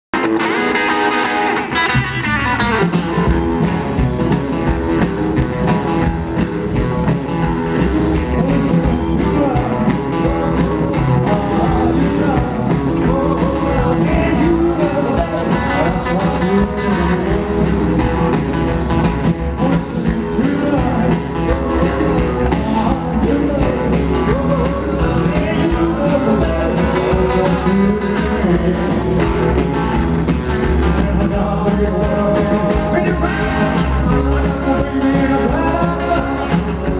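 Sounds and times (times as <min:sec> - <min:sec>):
electric guitar: 0:00.1 - 0:36.9
upright double bass: 0:01.9 - 0:36.9
man singing: 0:07.0 - 0:36.9.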